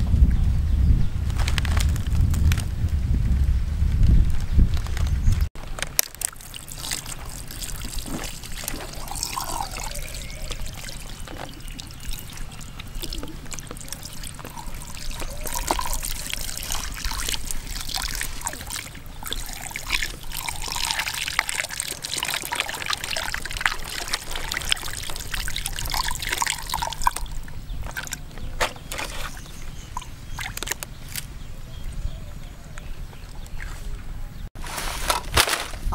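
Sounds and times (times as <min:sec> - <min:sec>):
wet squelching: 0:06.0 - 0:28.3
water trickling and splashing: 0:06.0 - 0:30.8.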